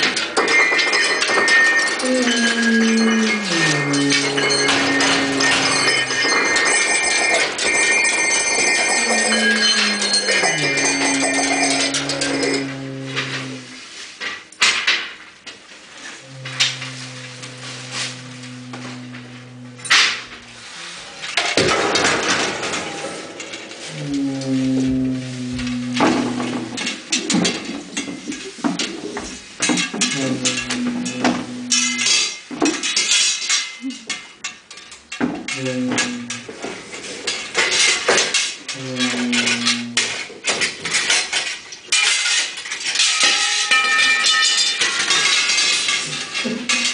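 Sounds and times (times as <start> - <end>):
metallic clanking and rattling: 0.0 - 15.2, 16.0 - 46.9
bright ringing metallic tones: 0.4 - 13.8, 16.2 - 26.9, 30.1 - 32.4
low horn-like tone: 2.1 - 6.2, 9.0 - 13.8, 16.2 - 21.3, 23.8 - 26.8
low horn-like note: 16.2 - 21.0.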